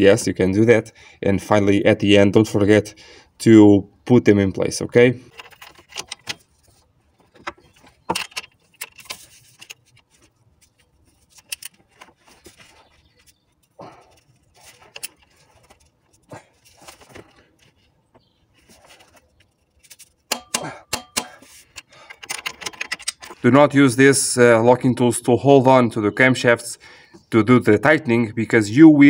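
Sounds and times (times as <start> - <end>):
metallic clicks of hand tools: 20.3 - 23.4.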